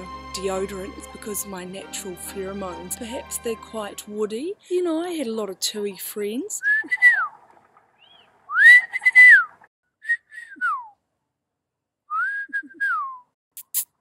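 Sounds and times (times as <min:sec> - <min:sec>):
person whistling birdsong: 0:08.5 - 0:11.0, 0:12.1 - 0:13.4.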